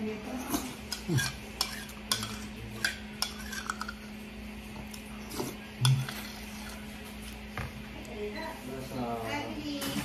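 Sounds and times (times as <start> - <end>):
metal spoon scraping a ceramic plate: 0.4 - 4.1.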